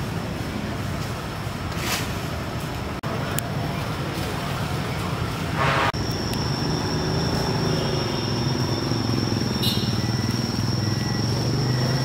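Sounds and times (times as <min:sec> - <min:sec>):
short burst of noise: 0:05.6 - 0:06.1
high-pitched whine: 0:05.6 - 0:12.0.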